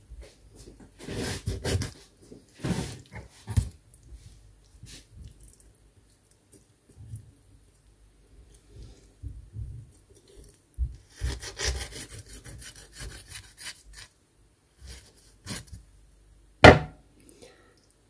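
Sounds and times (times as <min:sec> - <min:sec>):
knife sawing through fish: 0:01.0 - 0:02.0, 0:11.1 - 0:14.1, 0:14.8 - 0:15.8
sharp knock: 0:16.6 - 0:17.0.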